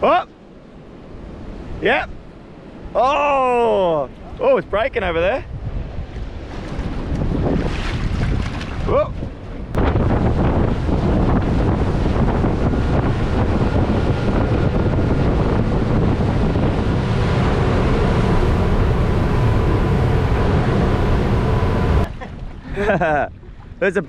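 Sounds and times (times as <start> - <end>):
wind buffeting microphone: 0.0 - 23.8
water rushing past hull: 3.6 - 23.8
boat engines at speed: 6.2 - 24.0
faint high whine: 11.8 - 22.1.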